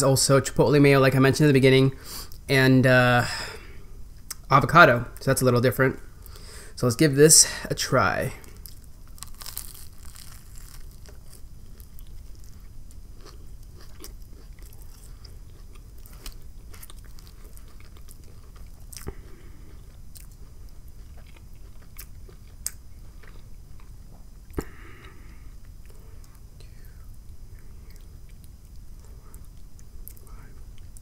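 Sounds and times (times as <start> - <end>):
chewing sandwich: 8.4 - 26.5.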